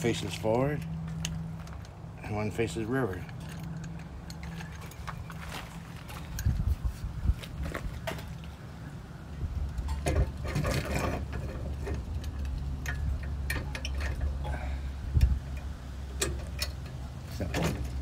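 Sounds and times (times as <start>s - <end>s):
steady low rumble: 0.0s - 18.0s
metal clicks and clanks: 3.1s - 6.6s, 9.8s - 14.6s, 15.2s - 18.0s.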